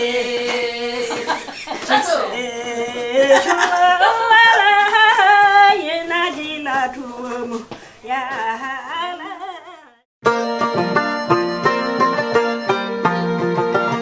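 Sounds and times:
woman singing unaccompanied: 0:00.0 - 0:10.0.

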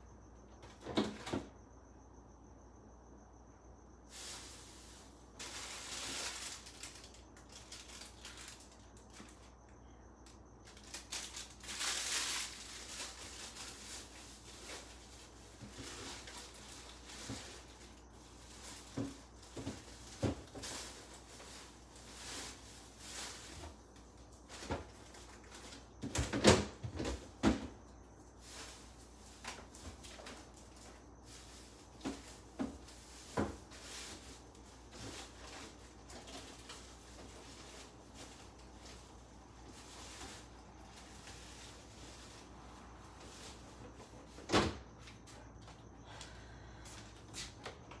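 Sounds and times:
packages rustling: 0:04.1 - 0:09.7, 0:10.6 - 0:26.1, 0:28.3 - 0:44.0.

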